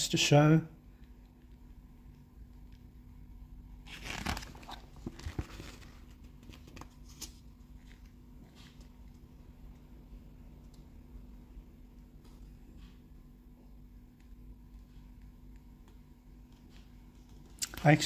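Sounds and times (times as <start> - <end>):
paper page rustling: 3.8 - 8.9
paper crinkles and taps: 3.9 - 8.9.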